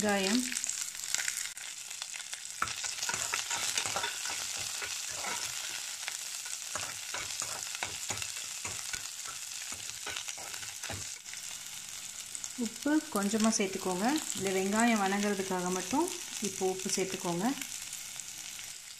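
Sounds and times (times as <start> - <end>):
food sizzling in hot oil: 0.0 - 18.9
spatula scraping pan: 2.6 - 11.4.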